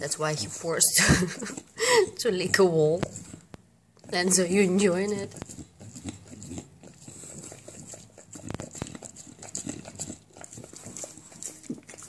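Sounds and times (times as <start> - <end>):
dog licking wet smacks: 5.0 - 12.0.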